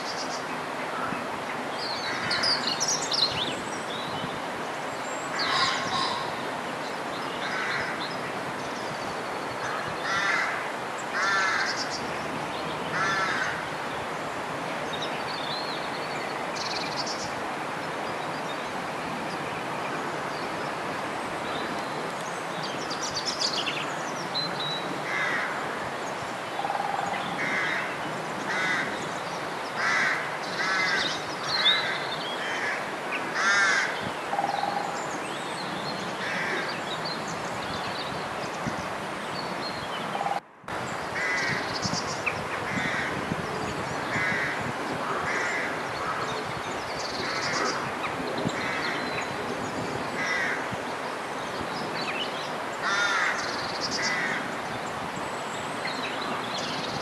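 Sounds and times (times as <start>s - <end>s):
birds cawing: 5.3s - 6.4s, 7.4s - 8.1s, 9.6s - 12.0s, 12.9s - 13.8s, 25.0s - 26.0s, 26.6s - 29.1s, 29.7s - 35.0s, 36.2s - 36.8s, 41.1s - 42.0s, 42.6s - 43.3s, 44.0s - 46.5s, 48.5s - 49.3s, 50.1s - 50.8s, 52.8s - 54.6s.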